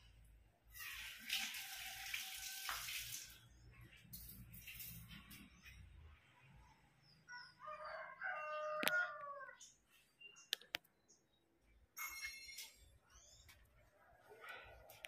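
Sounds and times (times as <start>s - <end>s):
rooster crowing: 7.3s - 9.6s.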